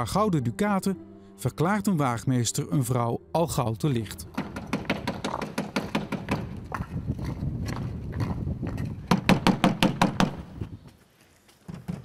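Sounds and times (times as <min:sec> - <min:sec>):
footsteps on pavement: 0:05.1 - 0:09.4, 0:10.6 - 0:12.0.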